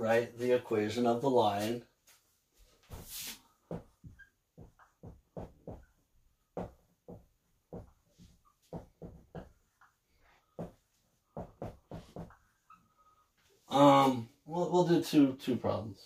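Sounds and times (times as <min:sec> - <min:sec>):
marker writing on whiteboard: 0:06.6 - 0:12.8.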